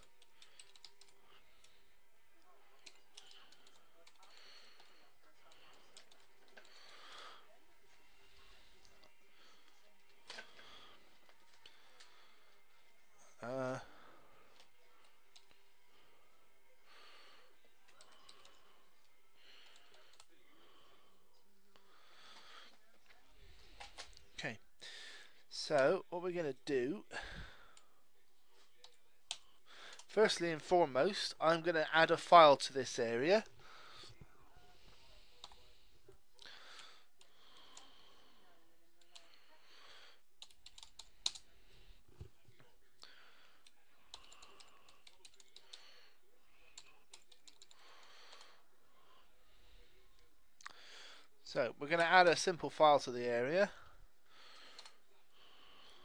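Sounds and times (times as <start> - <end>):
soft breaths into microphone: 32.3 - 40.4, 41.0 - 56.0.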